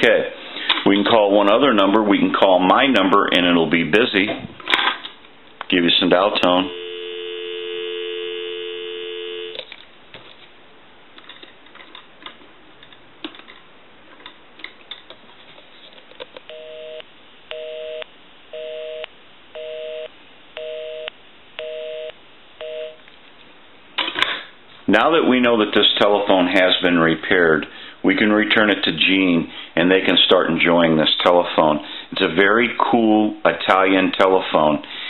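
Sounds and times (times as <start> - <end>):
busy signal beeps: 6.6 - 9.6, 16.5 - 23.0
telephone dial tone: 6.7 - 9.7.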